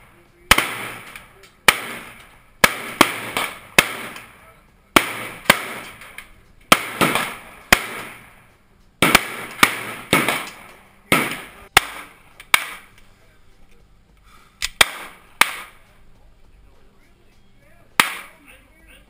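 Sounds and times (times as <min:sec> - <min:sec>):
rifle firing single shots: 0:00.0 - 0:13.0, 0:14.6 - 0:16.0, 0:18.0 - 0:18.4.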